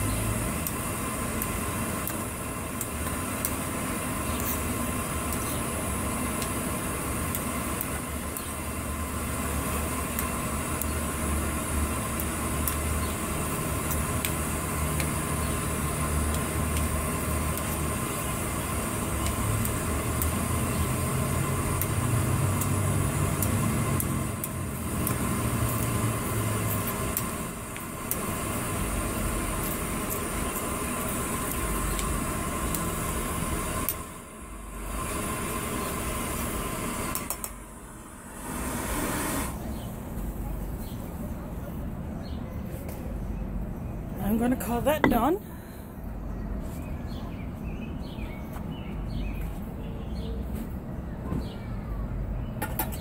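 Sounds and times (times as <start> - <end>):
gas stove hissing: 0.0 - 41.4.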